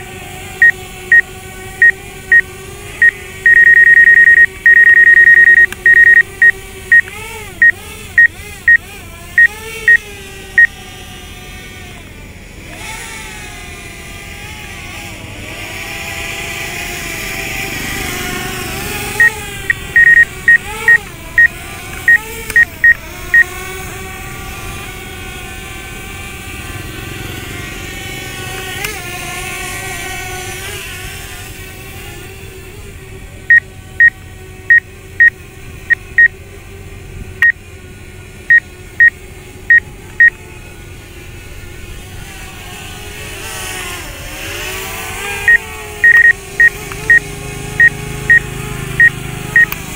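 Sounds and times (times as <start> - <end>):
drone propeller hum: 0.0 - 49.9
short high warning beeps: 1.8 - 2.4, 3.0 - 8.8, 19.2 - 21.5, 45.5 - 47.2.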